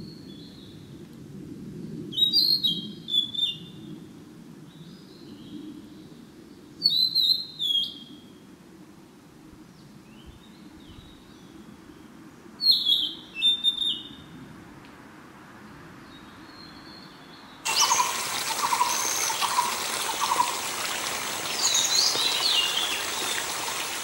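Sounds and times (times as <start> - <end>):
bird whistling song: 6.8 - 8.1, 12.6 - 14.2, 17.7 - 20.6, 21.4 - 23.8.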